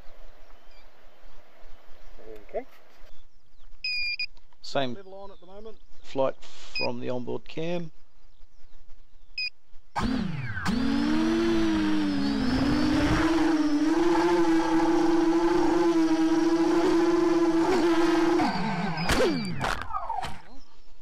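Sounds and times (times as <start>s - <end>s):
quadcopter propellers whining: 10.0s - 20.7s.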